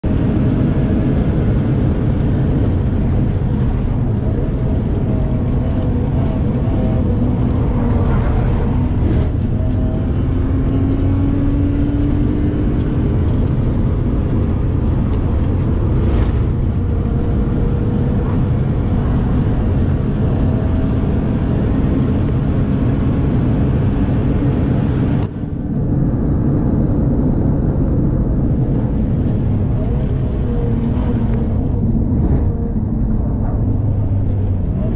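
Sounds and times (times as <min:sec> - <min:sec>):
car engine revving through gears: 0:00.1 - 0:25.3.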